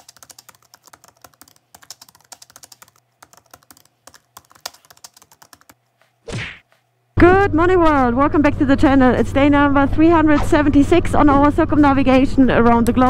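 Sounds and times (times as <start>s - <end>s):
rapid key clicks: 0.0s - 6.9s.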